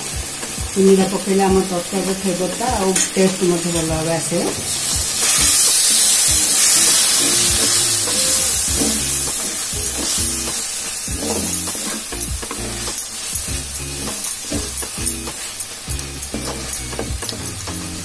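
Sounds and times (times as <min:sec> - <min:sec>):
masala sizzling in hot oil: 0:00.0 - 0:18.0
wooden spatula scraping metal pot: 0:05.2 - 0:18.0.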